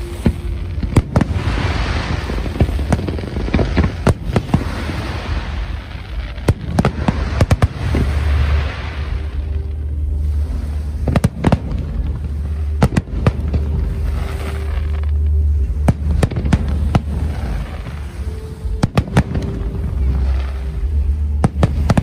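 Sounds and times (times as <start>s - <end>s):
fireworks bursting with sharp bangs: 0.0s - 22.0s
low rumble: 0.0s - 22.0s.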